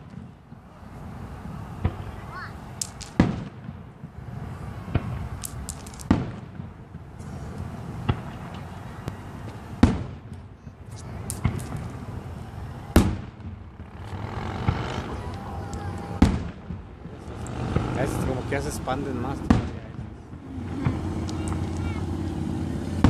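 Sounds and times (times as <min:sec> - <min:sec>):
fireworks booming: 0:00.0 - 0:23.0.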